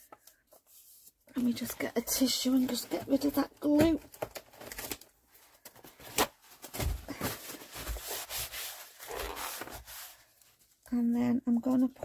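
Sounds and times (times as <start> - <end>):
paper tissue rustling: 4.3 - 10.8.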